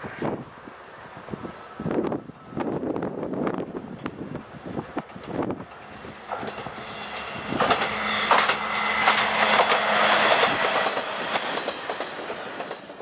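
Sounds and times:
railcar low hum: 0.0 - 13.0
wheels clacking over rail joints: 3.7 - 13.0.

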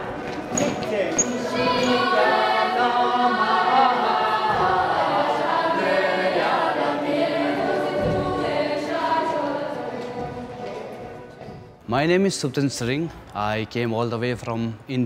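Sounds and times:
girls choir singing: 0.0 - 11.8.

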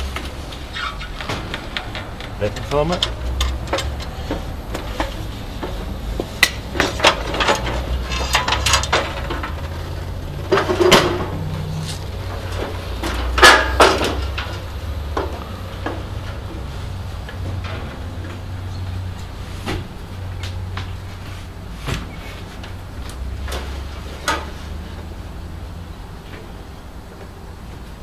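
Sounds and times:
metal frame parts knocking: 1.2 - 16.7.

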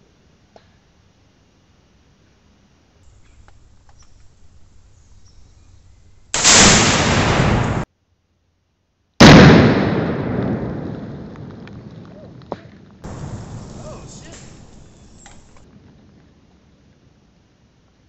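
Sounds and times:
explosive blast: 6.3 - 7.9, 9.2 - 11.6, 13.0 - 15.6.

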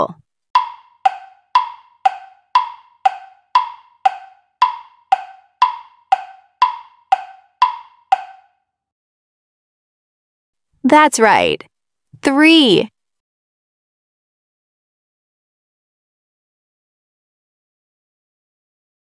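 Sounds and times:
ticking clock sound effect: 0.6 - 8.5.

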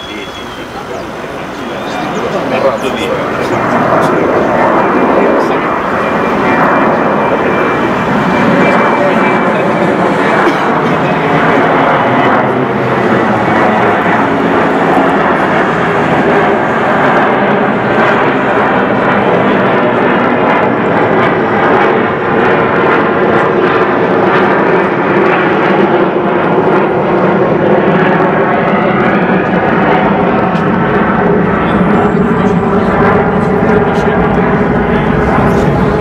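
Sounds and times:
jet airliner climbing out: 0.0 - 22.7.

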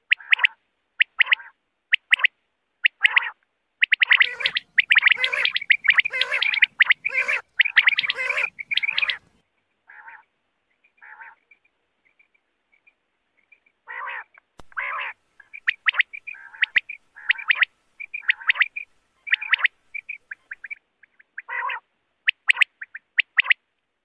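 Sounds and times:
quails calling: 0.0 - 10.3, 10.9 - 23.6
faint high pips: 3.9 - 10.2.

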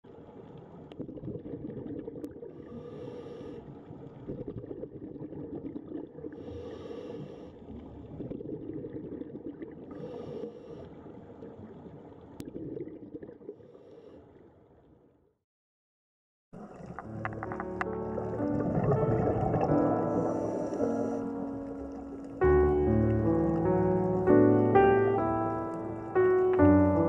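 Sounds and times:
underwater rush of water and bubbles: 0.1 - 14.2, 16.6 - 27.0
scuba regulator breathing hiss: 2.7 - 3.6, 6.4 - 7.6, 10.0 - 10.9, 20.0 - 21.3.

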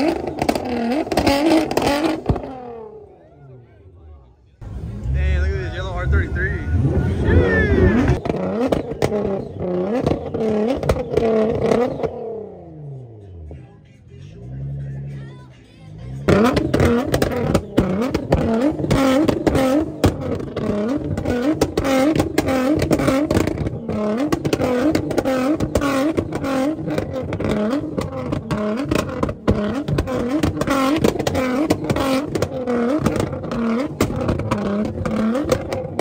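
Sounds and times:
exhaust crackles and pops: 0.0 - 2.7, 7.9 - 12.3, 16.2 - 36.0
car engine revving: 0.0 - 36.0.

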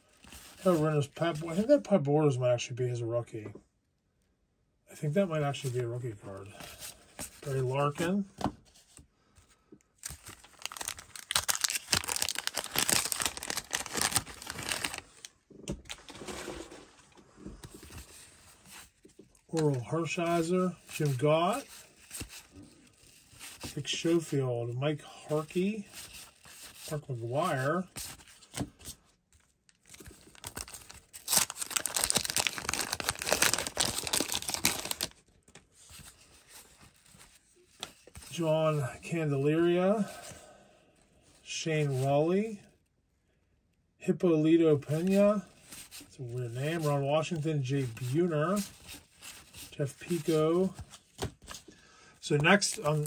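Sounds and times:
wrapper and cards rustling: 0.0 - 1.9, 5.3 - 40.4, 44.8 - 53.0
paper wrapper tearing and crinkling: 10.0 - 15.3, 29.7 - 35.2, 52.4 - 53.0.

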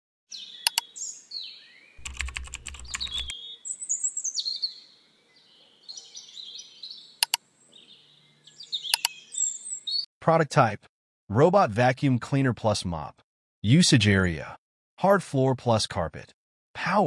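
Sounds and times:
high bird-like chirps: 0.3 - 1.5, 2.8 - 4.8, 8.5 - 10.1
mouse double click: 0.7 - 0.9, 2.0 - 3.3, 8.9 - 9.2
rapid keyboard-like clicking: 2.0 - 3.3.

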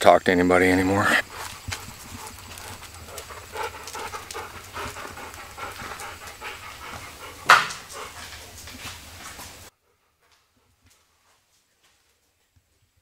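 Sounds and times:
dog panting: 1.1 - 11.2.

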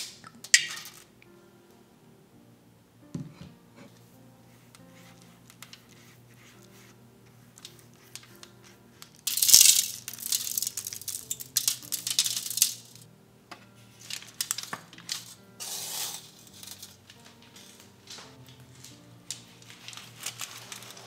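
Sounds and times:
soft background music: 0.0 - 21.0
salt grains pattering: 7.6 - 13.0, 14.0 - 21.0.

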